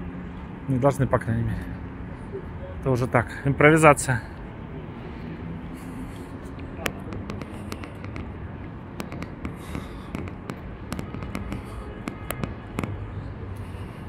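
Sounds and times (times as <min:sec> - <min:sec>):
low city rumble: 0:00.0 - 0:14.0
sharp irregular clicks and taps: 0:06.4 - 0:13.0.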